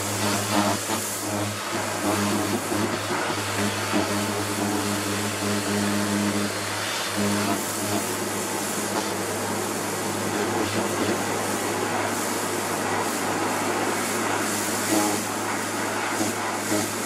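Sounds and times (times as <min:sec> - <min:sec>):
pressure washer motor humming: 0:00.0 - 0:17.0
water jet hissing: 0:00.0 - 0:17.0.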